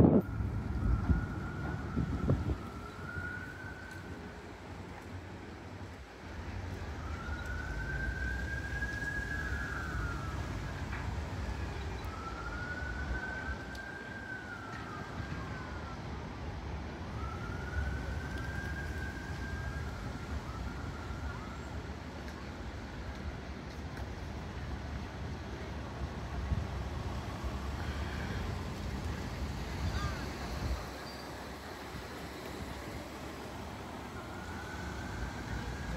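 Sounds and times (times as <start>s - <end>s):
siren wailing: 0.0s - 4.5s, 6.8s - 22.2s, 29.9s - 35.9s
street traffic rumble: 0.0s - 35.9s.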